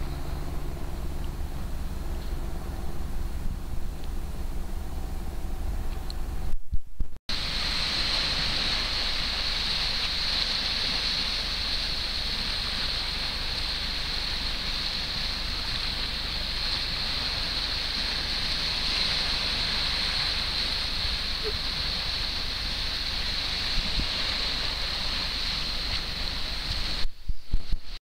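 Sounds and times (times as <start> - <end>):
waves washing over rocky shore: 7.3 - 27.1.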